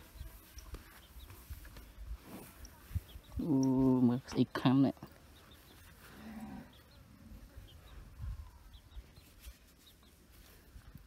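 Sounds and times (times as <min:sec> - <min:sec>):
faint low ox moo: 0:06.0 - 0:07.6.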